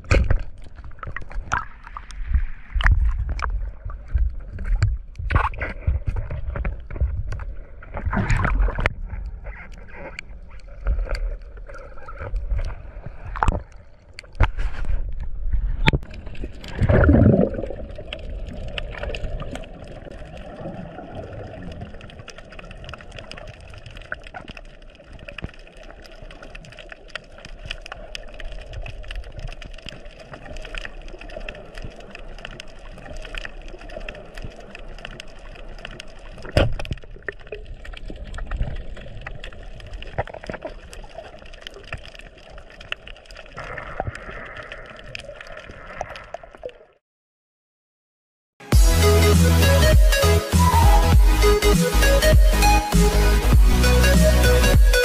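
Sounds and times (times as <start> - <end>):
underwater water gurgling: 0.0 - 47.0
loud bubbling gurgle: 16.1 - 22.2.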